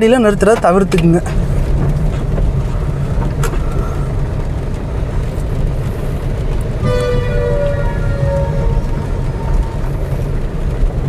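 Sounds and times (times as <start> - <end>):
car cabin road and engine rumble: 0.0 - 11.0
heavy rain on car: 0.0 - 11.0
windscreen wipers: 0.1 - 11.0
background music with held tone: 6.8 - 10.8.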